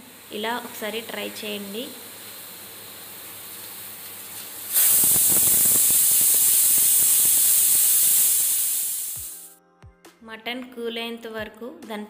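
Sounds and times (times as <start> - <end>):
faint steam hiss: 0.0 - 9.5
pressure cooker steam blast: 0.0 - 9.5.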